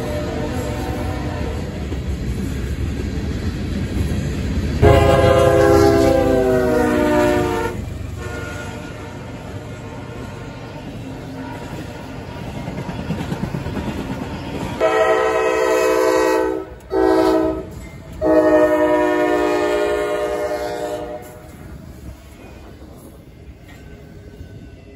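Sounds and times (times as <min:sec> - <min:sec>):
locomotive air horn blasts: 0:00.0 - 0:01.8, 0:04.8 - 0:10.6, 0:14.8 - 0:21.5
passing train rumble: 0:00.0 - 0:24.9.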